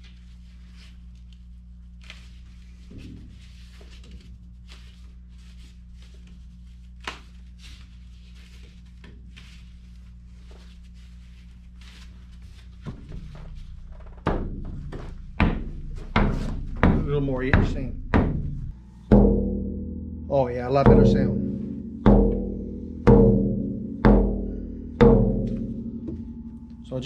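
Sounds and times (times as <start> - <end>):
steady low hum: 0.0 - 27.0
frame drum creaks and knocks: 12.9 - 18.7
ringing drum beats: 14.3 - 27.0.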